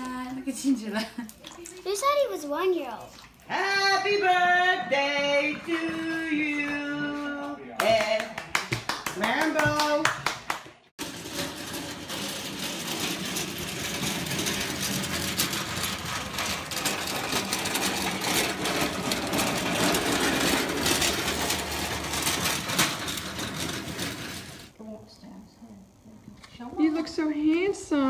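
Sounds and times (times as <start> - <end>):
metal wagon wheels rattling on concrete: 11.0 - 24.7.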